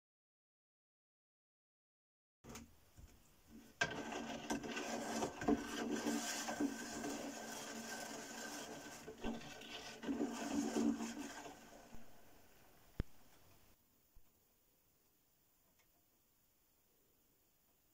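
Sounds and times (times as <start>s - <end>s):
rod stirring brine in glass jar: 3.5s - 12.6s.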